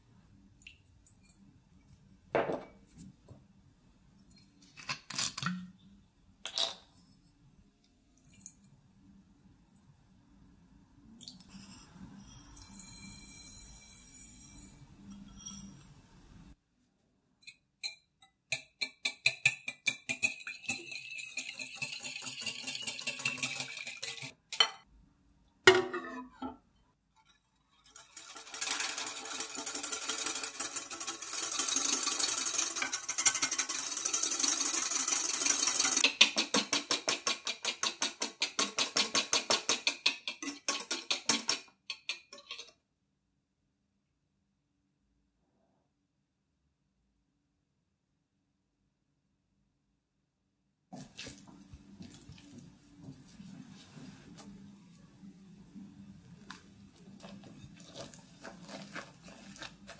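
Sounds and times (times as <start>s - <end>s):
whisk clicking in glass bowl: 18.5s - 24.3s, 28.0s - 42.2s
sugar pattering: 56.5s - 59.9s.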